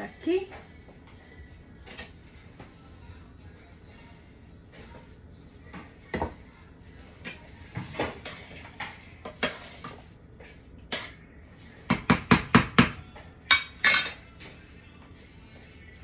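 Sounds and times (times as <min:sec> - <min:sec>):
cutlery clinking against glass dish: 0:13.5 - 0:14.2.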